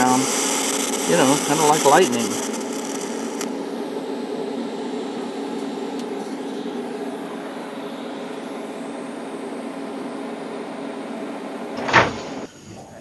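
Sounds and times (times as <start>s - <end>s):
welder droning with hiss: 0.0s - 10.4s
loud thump: 11.8s - 12.5s.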